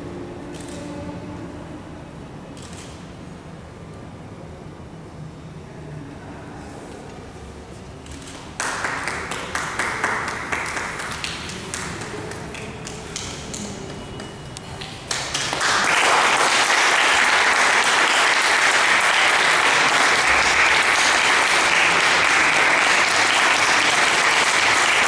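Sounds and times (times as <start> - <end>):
audience applauding: 8.4 - 25.0.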